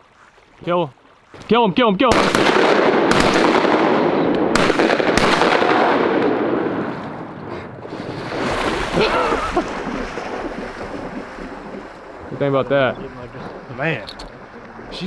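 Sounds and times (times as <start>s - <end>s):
shotguns firing in a volley: 2.1s - 6.9s.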